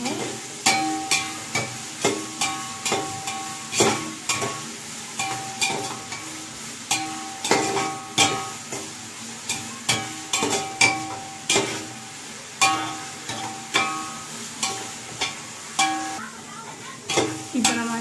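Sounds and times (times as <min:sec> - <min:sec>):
frying sizzle: 0:00.0 - 0:18.0.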